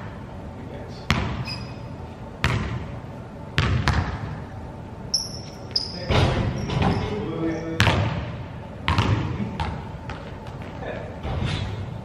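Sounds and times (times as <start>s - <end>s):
basketballs bouncing on gym floor: 1.1s - 1.8s, 2.4s - 2.9s, 3.6s - 4.4s, 7.8s - 11.6s
high squeak: 1.4s - 2.0s, 5.1s - 7.8s.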